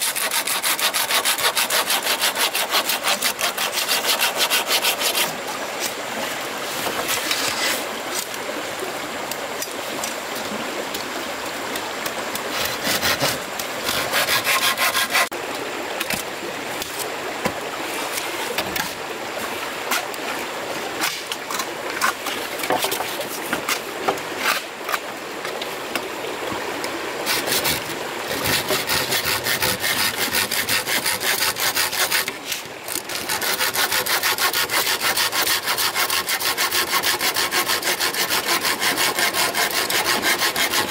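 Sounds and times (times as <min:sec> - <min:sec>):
hand tool working wood: 0:00.0 - 0:05.4, 0:06.8 - 0:08.3, 0:12.4 - 0:15.3, 0:27.3 - 0:40.9.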